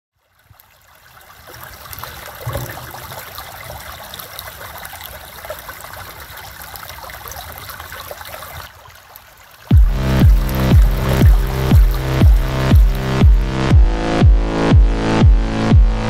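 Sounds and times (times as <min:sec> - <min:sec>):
stream trickling over stones: 0:00.1 - 0:13.6
low thump: 0:09.7 - 0:16.0.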